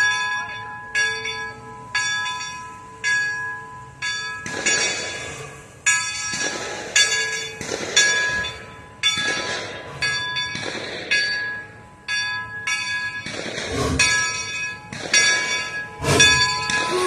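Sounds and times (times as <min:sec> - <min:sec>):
locomotive bell ringing: 0:00.0 - 0:17.0
steam hiss bursts: 0:04.4 - 0:11.2, 0:13.3 - 0:17.0.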